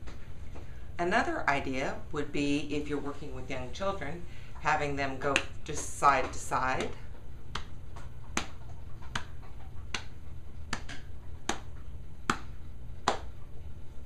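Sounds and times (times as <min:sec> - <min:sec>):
hands patting thighs: 0:05.3 - 0:13.4.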